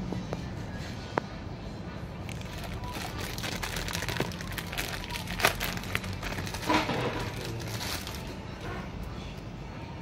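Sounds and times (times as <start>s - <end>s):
cables and hardware rustling: 2.2s - 8.9s.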